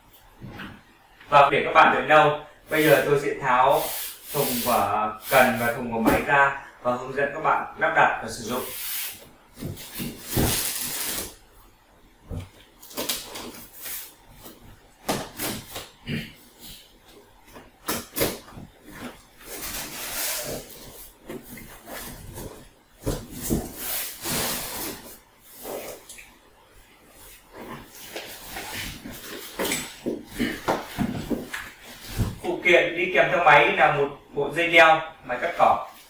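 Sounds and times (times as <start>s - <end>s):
cardboard knocks and rustles: 29.6s - 31.6s.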